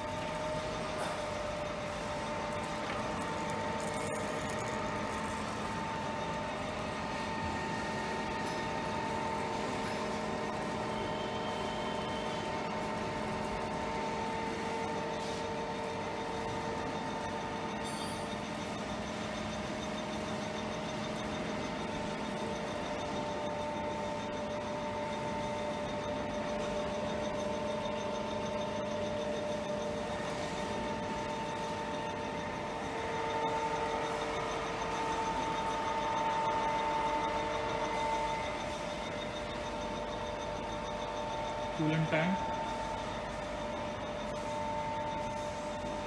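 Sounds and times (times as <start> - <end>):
held machine tones: 16.2 - 46.0.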